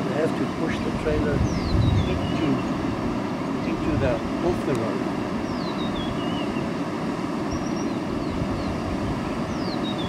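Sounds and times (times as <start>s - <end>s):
floodwater rushing over road: 0.0s - 10.0s
bird whistling descending notes: 5.4s - 6.6s, 9.5s - 10.0s.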